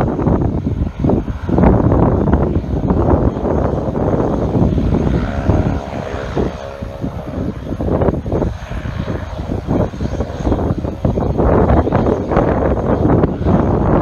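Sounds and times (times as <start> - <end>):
propeller airplane engine running: 0.0 - 14.0
wind buffeting microphone: 0.0 - 14.0.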